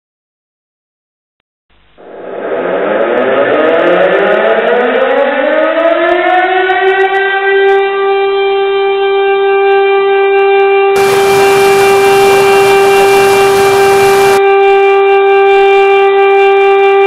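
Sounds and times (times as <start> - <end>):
siren winding up: 2.0 - 6.5, 11.0 - 14.4.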